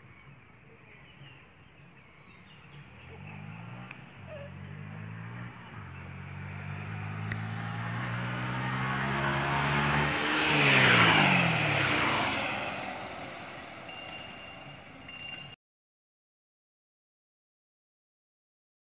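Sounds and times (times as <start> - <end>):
vehicle engine passing by: 2.5 - 14.2.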